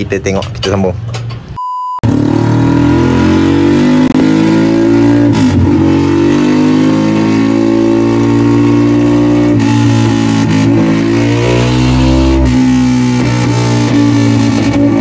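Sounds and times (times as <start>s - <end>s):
short beep: 1.6s - 2.1s
motorcycle engine revving high: 2.0s - 15.0s.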